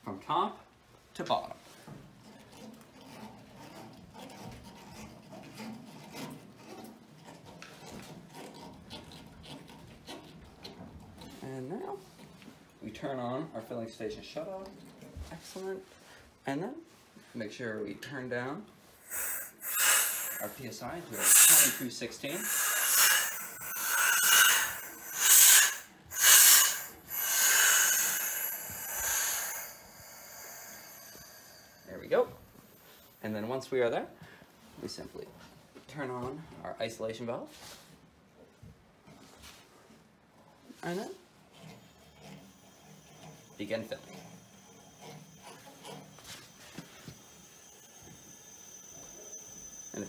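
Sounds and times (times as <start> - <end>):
valve knobs clicking and rubbing: 19.0 - 33.2
compressed air hissing: 19.0 - 33.3.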